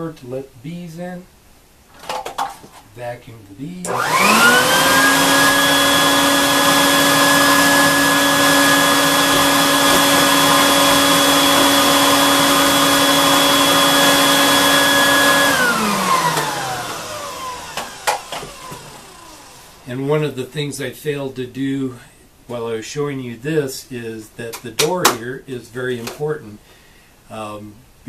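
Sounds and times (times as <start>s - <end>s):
vacuum motor running: 3.9s - 19.9s.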